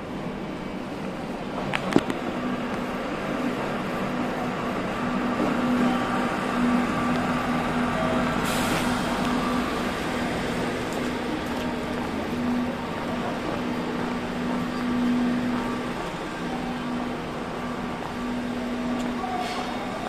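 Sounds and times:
train rumbling: 0.0s - 20.0s
air hiss: 8.4s - 9.2s.

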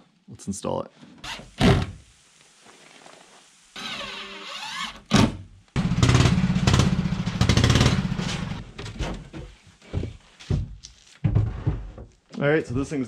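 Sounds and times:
knocks and clunks: 6.0s - 12.9s.

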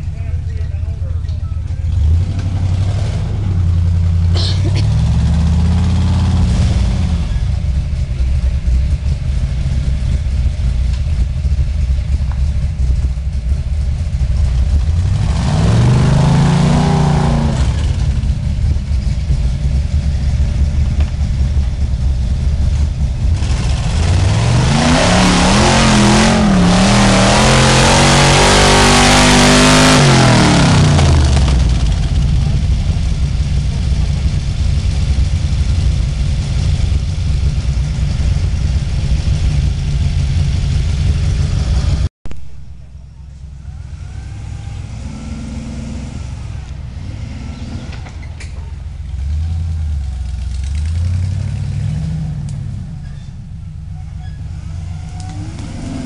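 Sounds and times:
engine running at low revs: 0.0s - 56.0s
tires spinning and spraying dirt: 0.0s - 56.0s
engine revving hard: 1.9s - 7.4s, 14.7s - 18.4s, 23.3s - 32.2s, 43.8s - 48.2s, 49.2s - 52.7s, 54.6s - 56.0s.

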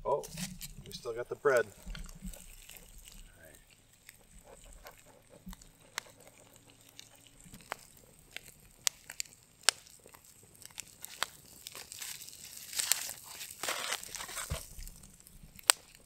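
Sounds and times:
aluminium foil crinkling: 0.0s - 16.0s
campfire crackling: 0.0s - 16.0s
fire popping: 0.0s - 16.0s.

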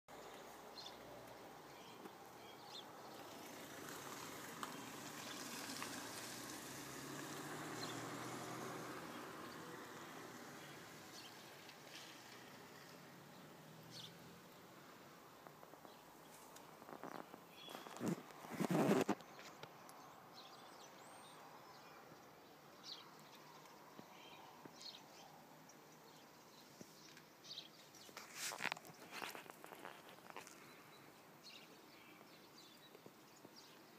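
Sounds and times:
outdoor background noise: 0.0s - 33.9s
short rustles: 16.3s - 19.6s, 28.0s - 30.7s
faint bird chirps: 16.9s - 18.1s, 19.2s - 33.9s.

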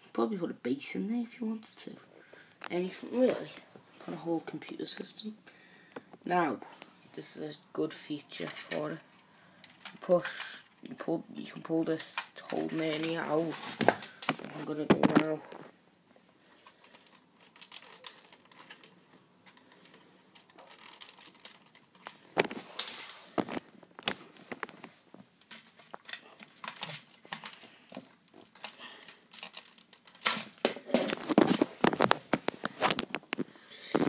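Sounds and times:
knocks and rustles: 12.2s - 15.8s, 17.5s - 34.0s
plastic bricks clicking and rattling: 16.6s - 22.6s, 23.4s - 33.4s.

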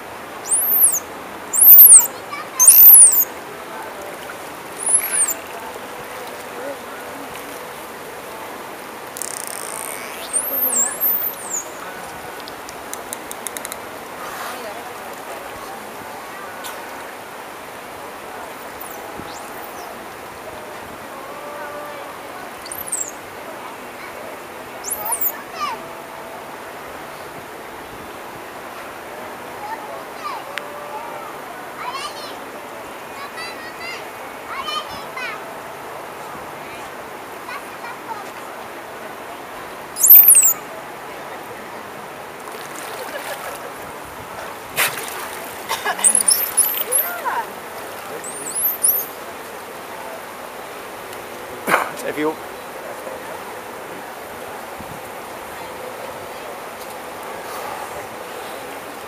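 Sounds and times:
murmur of distant voices: 0.0s - 59.0s
pool water lapping: 0.0s - 59.0s
high swooping whistles: 0.4s - 3.3s, 4.8s - 5.4s, 9.6s - 11.8s, 22.6s - 23.2s, 24.8s - 25.4s, 40.0s - 40.6s, 46.0s - 47.2s, 48.2s - 49.2s
dolphin surfacing splash: 42.4s - 49.2s.

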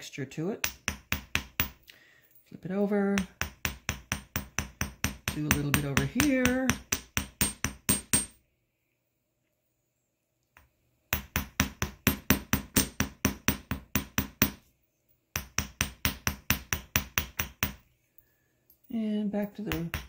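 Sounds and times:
hammer tapping wire on metal block: 0.6s - 1.8s, 3.1s - 8.4s, 10.6s - 14.7s, 15.3s - 17.8s, 19.5s - 20.0s.

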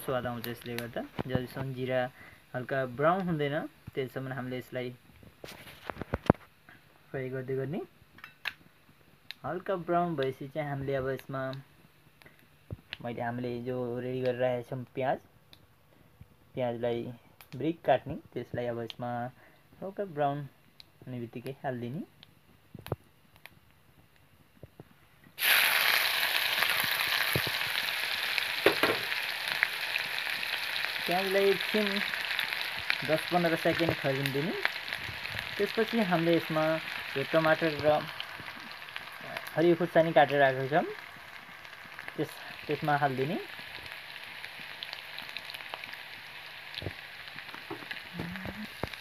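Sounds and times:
onion sizzling in hot oil: 0.0s - 6.6s, 25.4s - 49.0s.

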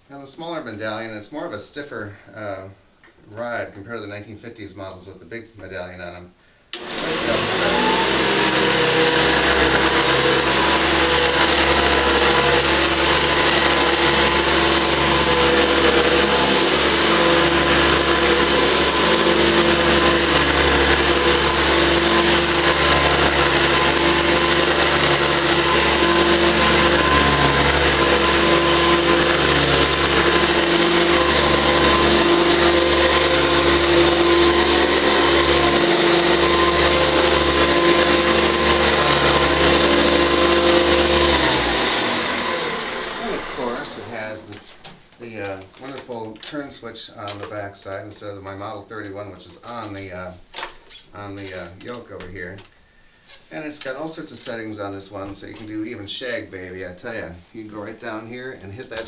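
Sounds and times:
vacuum cleaner whining: 6.7s - 44.8s.

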